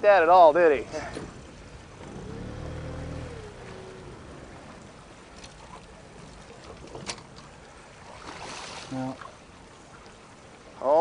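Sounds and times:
river water rushing: 0:00.0 - 0:11.0
low motor hum: 0:00.8 - 0:08.3.

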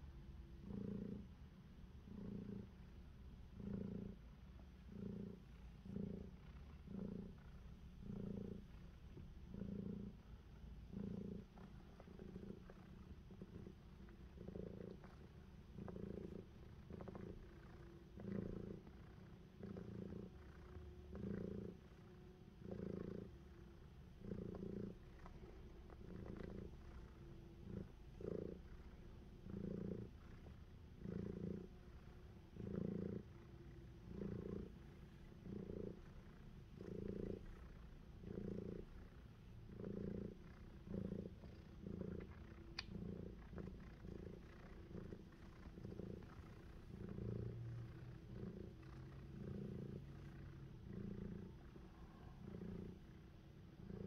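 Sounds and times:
cat purring: 0:00.0 - 0:54.0.

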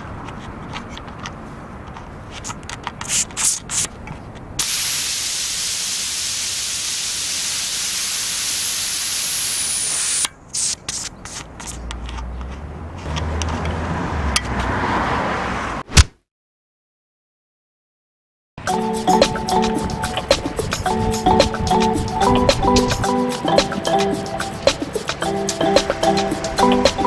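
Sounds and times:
air hissing out of tyre valve: 0:04.6 - 0:11.8.

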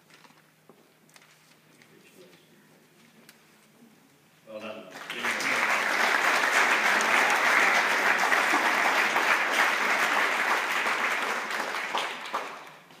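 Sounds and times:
audience applause: 0:05.0 - 0:12.9.

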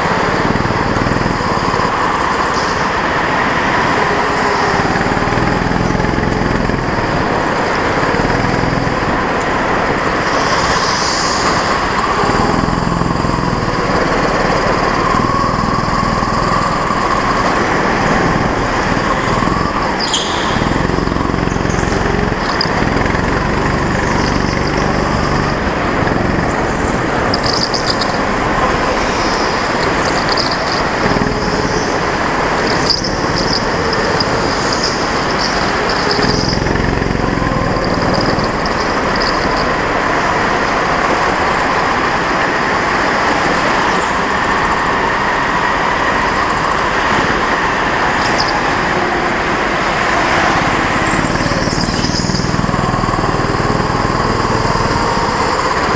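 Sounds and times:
go-kart engine running: 0:00.0 - 0:55.9
steady rushing noise: 0:00.0 - 0:55.9.

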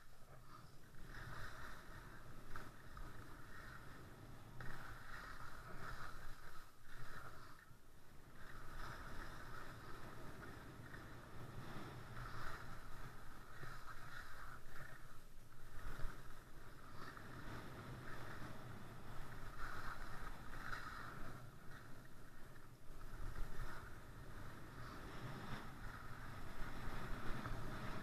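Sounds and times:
skis scraping over snow: 0:00.0 - 0:28.0
wind on microphone: 0:00.0 - 0:28.0.

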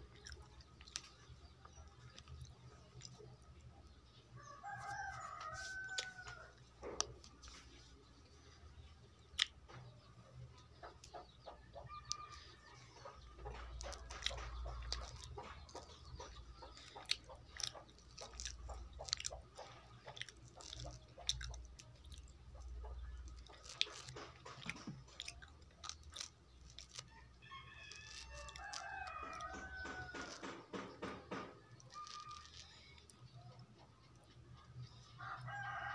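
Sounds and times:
rooster crowing: 0:04.4 - 0:06.5, 0:27.2 - 0:30.6, 0:35.2 - 0:35.9
orange being peeled: 0:04.5 - 0:09.8, 0:12.0 - 0:35.5.

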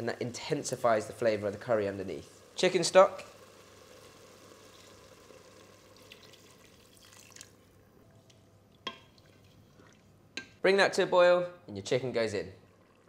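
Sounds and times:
liquid trickling into pot: 0:02.4 - 0:10.2, 0:12.6 - 0:13.0.

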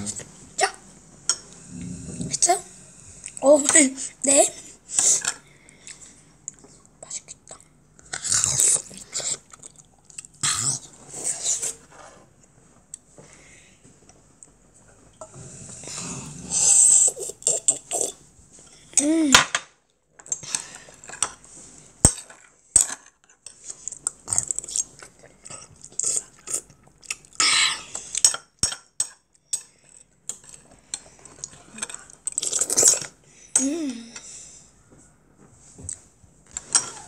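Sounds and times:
close-up eating sounds: 0:01.3 - 0:13.2, 0:14.0 - 0:19.2, 0:20.2 - 0:34.5
person humming: 0:33.6 - 0:34.2.

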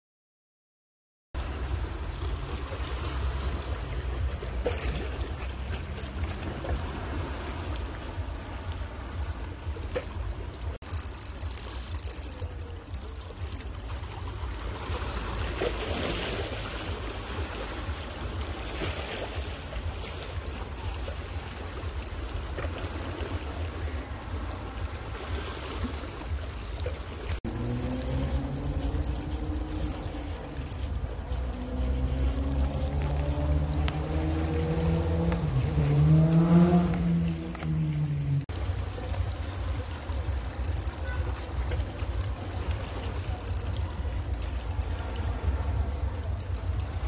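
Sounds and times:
small waves lapping: 0:01.4 - 0:47.0
faint clicks: 0:06.0 - 0:09.4, 0:10.8 - 0:14.3, 0:27.4 - 0:34.6, 0:38.4 - 0:41.8, 0:42.5 - 0:45.3, 0:46.4 - 0:47.0.

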